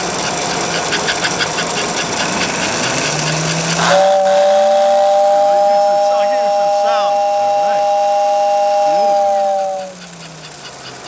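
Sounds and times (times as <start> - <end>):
steady two-note tone: 3.5 - 10.1.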